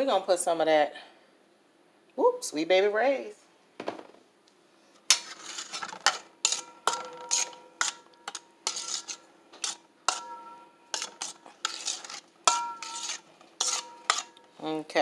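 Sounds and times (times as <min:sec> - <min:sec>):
spoon clinking against metal bowl: 0:06.4 - 0:14.6.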